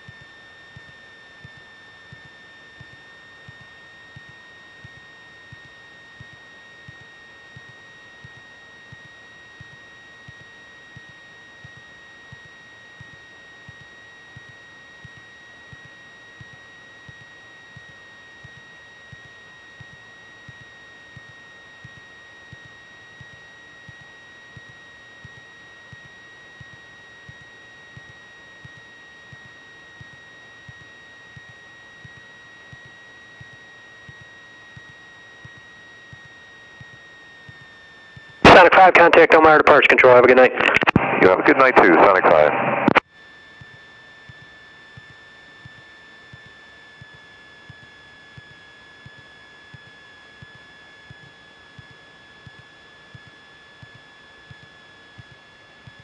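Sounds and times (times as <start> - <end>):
high electrical whine: 37.9 - 43.0.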